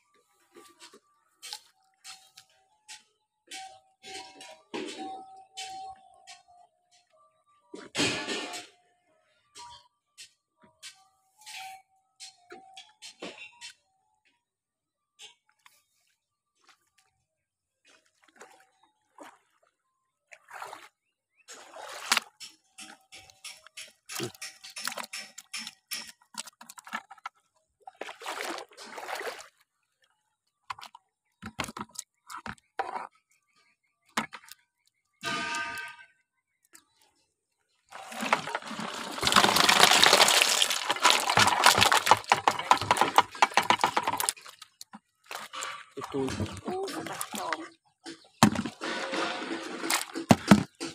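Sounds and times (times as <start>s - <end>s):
muddy water splashing: 17.9s - 19.7s, 20.3s - 29.7s, 37.9s - 47.7s, 48.4s - 50.9s
water gushing into bucket: 37.9s - 44.7s.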